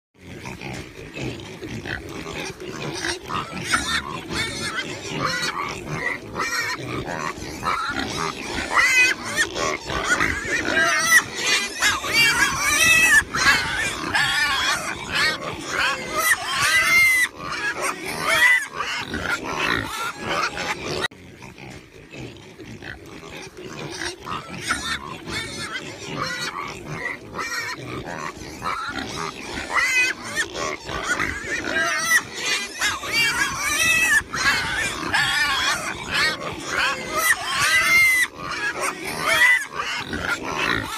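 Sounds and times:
pigs squealing and grunting: 0.2s - 40.9s.

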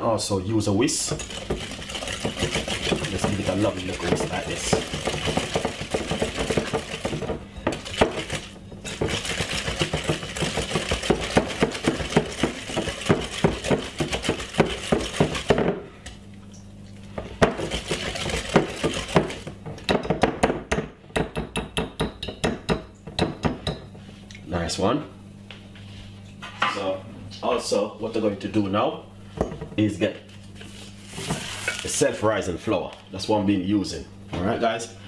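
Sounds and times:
whisk clinking against glass bowl: 1.1s - 15.7s.

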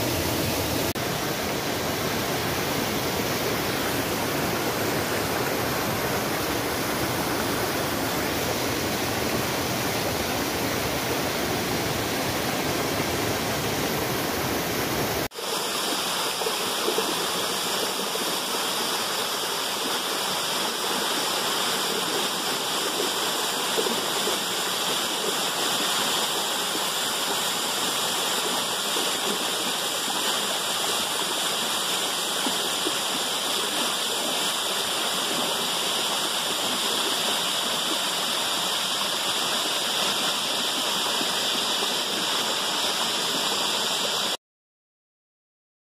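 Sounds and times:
waterfall rushing and splashing: 0.0s - 44.4s.

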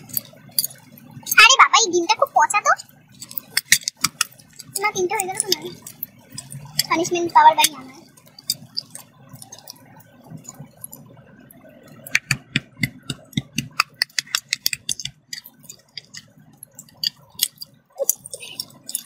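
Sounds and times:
eggshell cracking: 2.8s - 11.1s, 11.9s - 19.0s
shell pieces dropping on metal: 3.2s - 4.8s.

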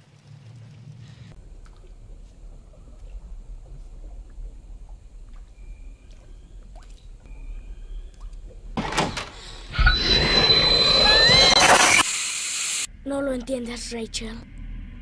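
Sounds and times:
low rumble: 0.4s - 11.6s
thin high whine: 8.8s - 13.0s.

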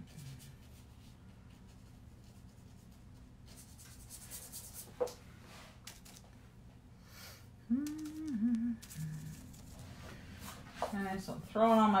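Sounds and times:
paintbrush rubbing on paper: 0.0s - 5.7s, 8.8s - 12.0s.

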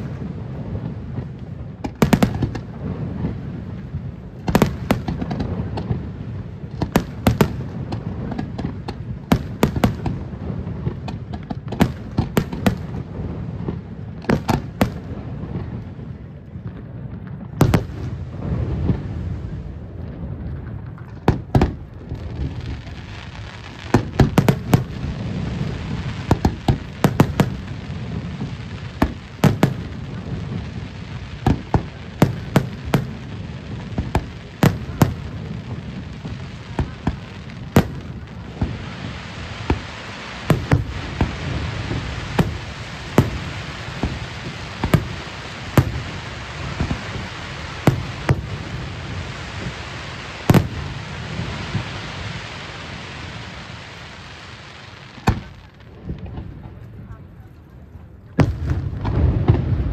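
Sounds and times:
crackling hiss: 0.0s - 59.9s
firework shells bursting: 23.8s - 52.0s.

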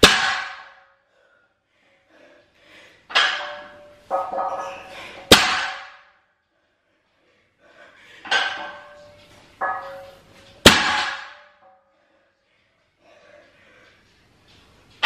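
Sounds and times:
barbell clanging on rubber floor: 0.0s - 0.9s, 3.1s - 6.2s, 8.2s - 11.8s
weight plates clanking: 3.1s - 6.1s, 8.2s - 11.8s.

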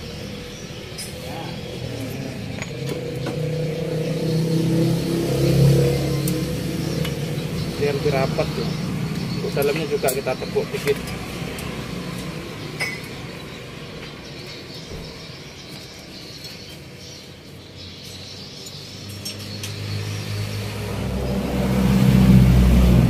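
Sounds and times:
vehicle engine running: 1.4s - 15.6s.

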